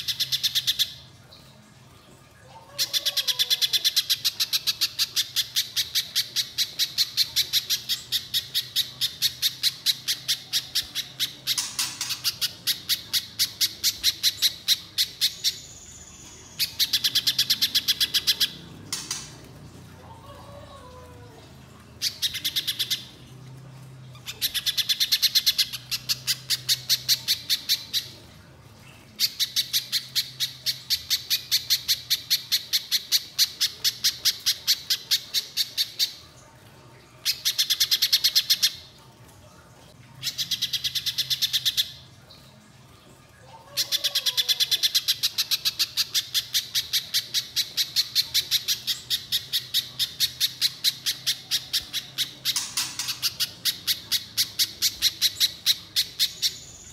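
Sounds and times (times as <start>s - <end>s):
bird singing rapid sharp notes: 48.9s - 56.9s.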